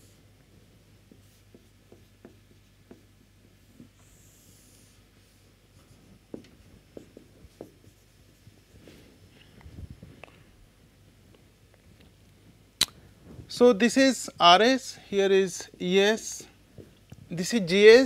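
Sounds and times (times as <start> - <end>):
steady low hum: 0.0 - 18.0
marker scratching on whiteboard: 1.0 - 8.4.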